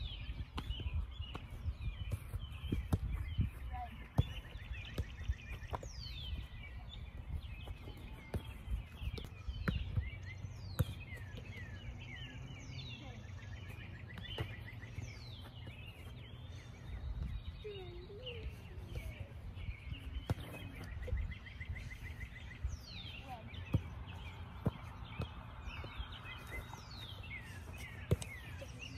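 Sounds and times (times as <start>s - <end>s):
wind rumble on microphone: 0.0s - 3.8s
songbirds chirping and trilling: 0.0s - 28.9s
soccer ball thuds: 0.4s - 6.3s, 7.4s - 11.8s, 13.6s - 16.2s, 19.8s - 21.2s, 22.9s - 28.7s.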